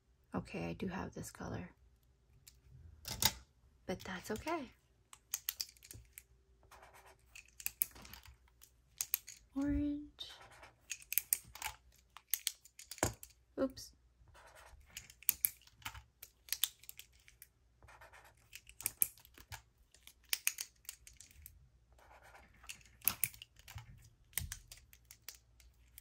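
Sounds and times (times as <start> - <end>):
plastic pen clicks and taps: 5.1 - 6.2, 7.4 - 9.4, 10.9 - 13.4, 15.0 - 17.2, 18.5 - 21.4, 22.6 - 26.0.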